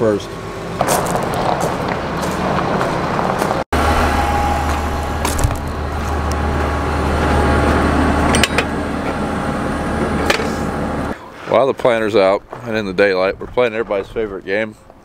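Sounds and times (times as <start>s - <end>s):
vehicle engine humming: 0.0s - 11.2s.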